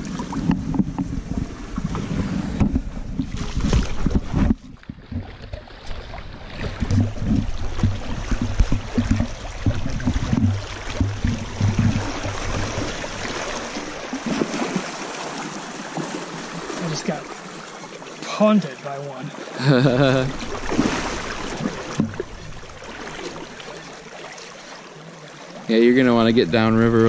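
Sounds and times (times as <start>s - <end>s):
wind rumble on microphone: 0.0s - 13.9s
microphone handling noise: 0.2s - 6.0s, 6.6s - 13.2s
sloshing steps in river water: 3.2s - 19.6s, 20.2s - 25.7s.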